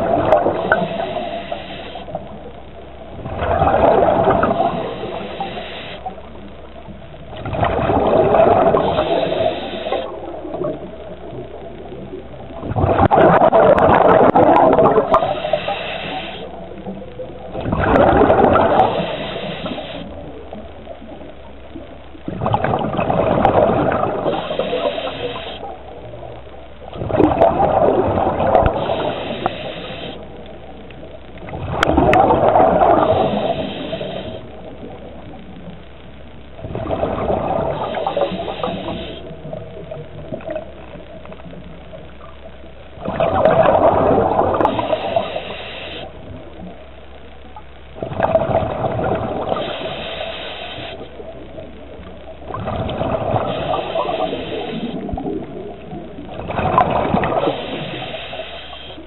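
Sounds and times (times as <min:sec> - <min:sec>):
diver breathing bubbles: 0:00.0 - 0:02.4, 0:03.2 - 0:06.2, 0:07.4 - 0:10.7, 0:12.6 - 0:16.9, 0:17.5 - 0:20.3, 0:22.3 - 0:25.8, 0:26.9 - 0:30.6, 0:31.5 - 0:34.8, 0:36.6 - 0:40.6, 0:43.0 - 0:46.4, 0:48.0 - 0:51.1, 0:52.5 - 0:59.0
regulator hiss: 0:00.0 - 0:02.5, 0:04.1 - 0:06.9, 0:08.2 - 0:11.0, 0:14.0 - 0:21.8, 0:23.9 - 0:26.4, 0:27.8 - 0:31.1, 0:32.4 - 0:35.7, 0:37.1 - 0:40.6, 0:43.4 - 0:46.8, 0:48.3 - 0:56.0, 0:57.0 - 0:59.0.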